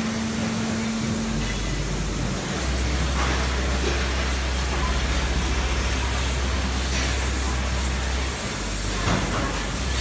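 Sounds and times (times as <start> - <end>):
factory machinery din: 0.0 - 10.0
low machinery hum: 0.0 - 10.0.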